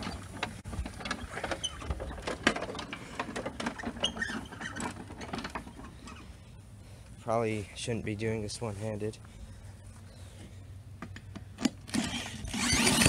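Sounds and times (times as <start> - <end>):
lawnmower handling clicks and rattles: 0.0 - 6.2, 11.0 - 13.0.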